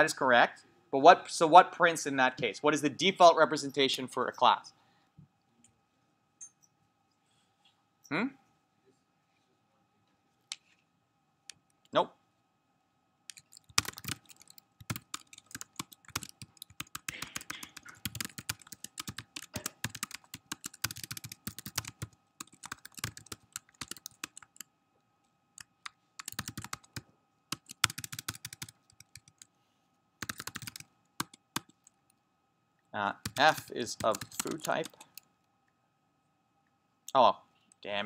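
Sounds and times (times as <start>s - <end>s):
typing on a computer keyboard: 13.3s - 24.7s, 25.6s - 29.5s, 30.2s - 32.0s, 33.2s - 35.3s.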